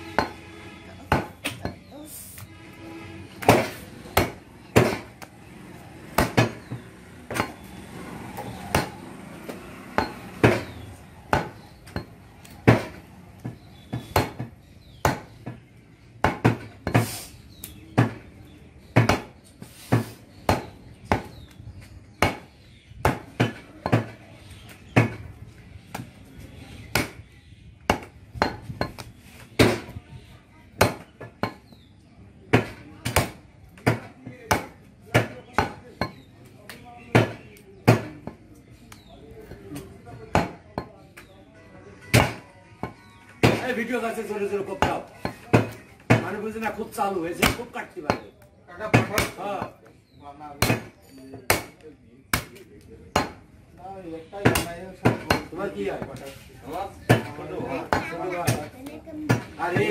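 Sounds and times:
cleaver chopping meat on wood: 0:01.1 - 0:01.8, 0:03.4 - 0:05.2, 0:06.0 - 0:07.7, 0:08.4 - 0:15.6, 0:16.2 - 0:25.3, 0:26.9 - 0:30.0, 0:30.7 - 0:31.8, 0:32.5 - 0:41.3, 0:42.1 - 0:43.7, 0:44.6 - 0:46.7, 0:47.3 - 0:49.9, 0:50.6 - 0:53.5, 0:54.4 - 0:56.2, 0:57.1 - 0:58.7, 0:59.3 - 0:59.9.

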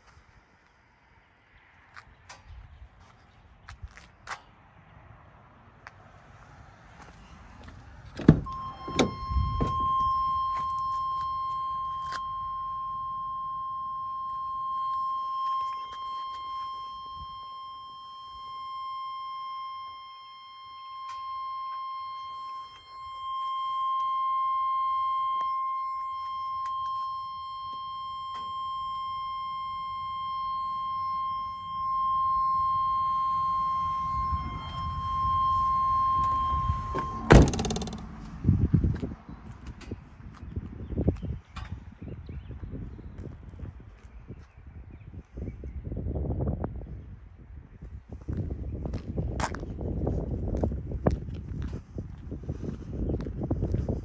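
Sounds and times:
car door thunk: 0:08.1 - 0:10.8, 0:35.6 - 0:38.1
high electronic warning tone: 0:08.2 - 0:38.1.

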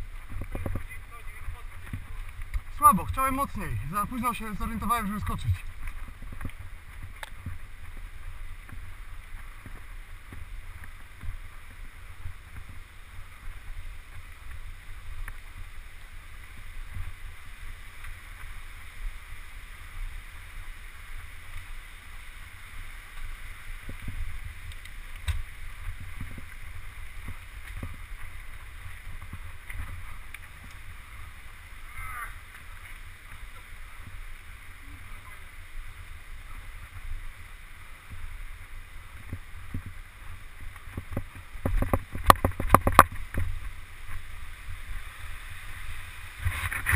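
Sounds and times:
tyres rolling on dirt: 0:00.0 - 0:46.9
wind on microphone: 0:22.3 - 0:46.9.

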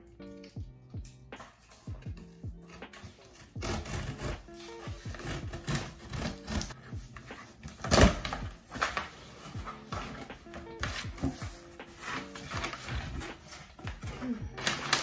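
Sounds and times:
scissors scraping through tape: 0:02.6 - 0:06.8, 0:09.9 - 0:15.0
tape and cardboard ripping: 0:02.7 - 0:15.0.

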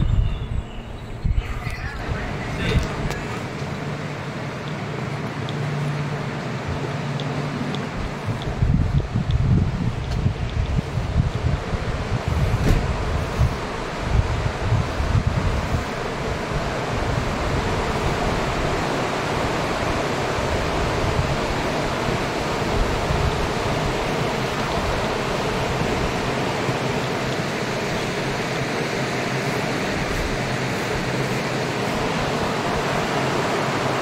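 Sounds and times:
wind buffeting microphone: 0:00.0 - 0:34.0
fast-flowing river water: 0:15.4 - 0:34.0.

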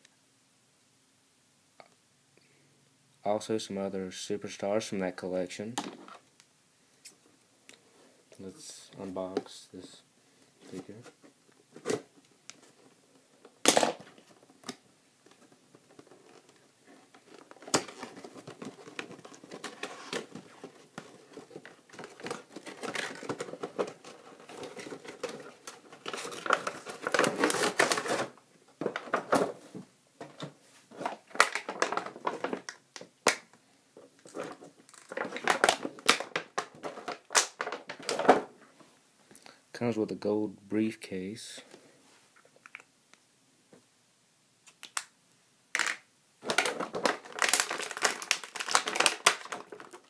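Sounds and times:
plastic bag crinkling: 0:15.3 - 0:28.4, 0:45.8 - 0:50.0.

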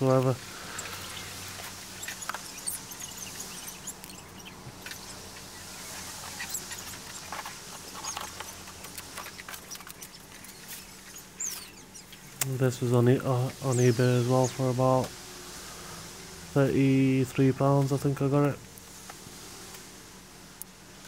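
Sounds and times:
plastic and cardboard rustling: 0:00.0 - 0:11.9.

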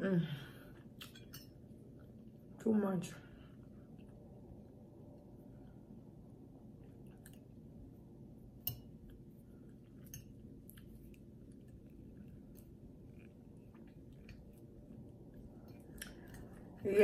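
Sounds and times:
low steady hum: 0:00.0 - 0:17.0
quiet chewing: 0:00.5 - 0:02.5, 0:03.4 - 0:17.0
fork clicking on plate: 0:08.6 - 0:09.0.

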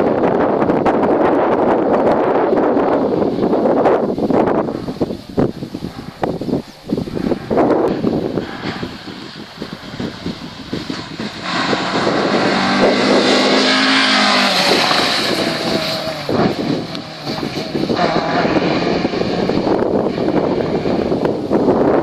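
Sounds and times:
wind buffeting microphone: 0:00.0 - 0:22.0
rally car driving past: 0:07.5 - 0:21.3.

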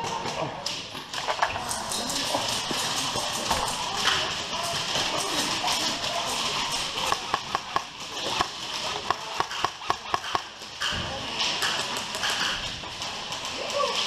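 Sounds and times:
airsoft rifle shots: 0:05.2 - 0:10.9.

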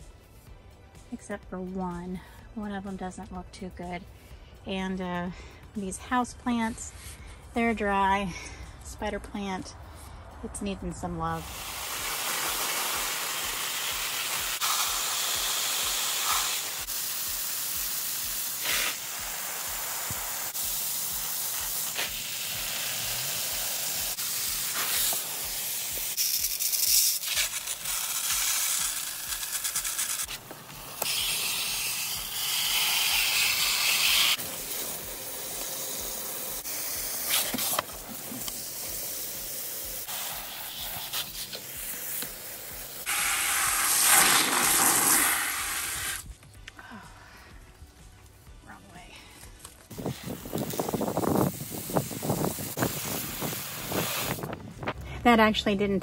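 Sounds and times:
water spraying from hose: 0:11.4 - 0:46.3, 0:49.9 - 0:54.5.

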